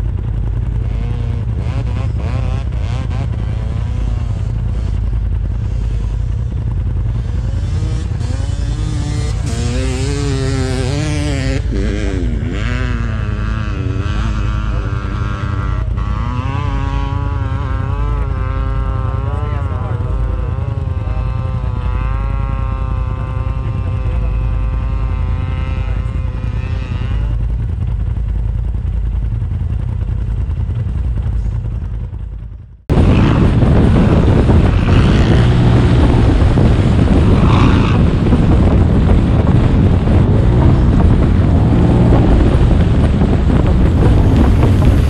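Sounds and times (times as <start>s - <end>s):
rushing noise of vehicle at speed: 0.0s - 45.0s
side-by-side engine running: 0.0s - 45.0s.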